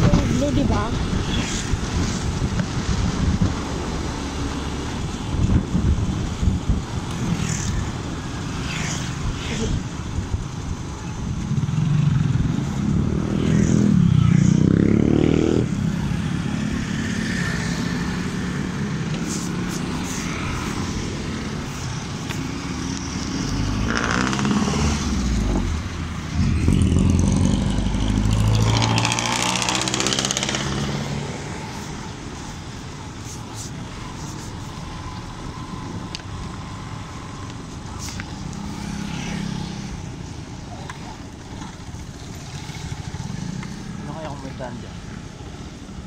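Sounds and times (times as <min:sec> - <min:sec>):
road and wind noise: 0:00.0 - 0:46.0
motorcycle engine accelerating: 0:23.5 - 0:31.1.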